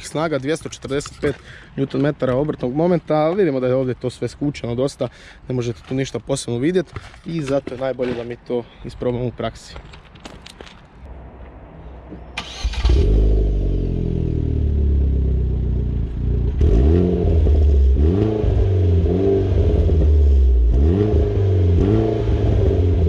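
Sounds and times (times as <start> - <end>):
car engine starting: 12.3 - 23.0
car engine revving: 12.4 - 23.0.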